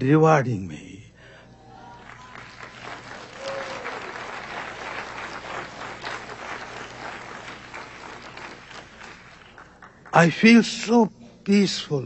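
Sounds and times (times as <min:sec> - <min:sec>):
audience applauding: 0:01.9 - 0:10.4.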